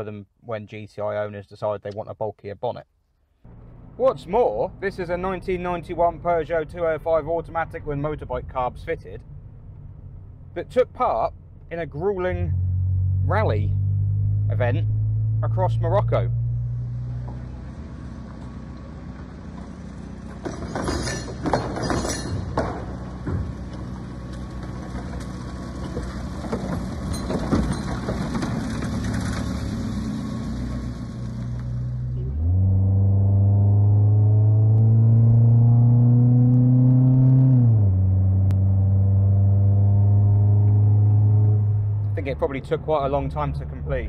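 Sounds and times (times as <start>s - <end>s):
car engine accelerating: 11.3s - 20.7s, 22.9s - 44.0s
sharp knocks on dirt road: 19.5s - 30.1s.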